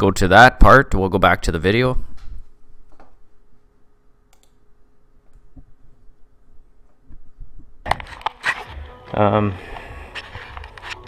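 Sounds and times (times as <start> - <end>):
faint steady hum: 0.0 - 11.0
faint clicks: 4.3 - 4.6.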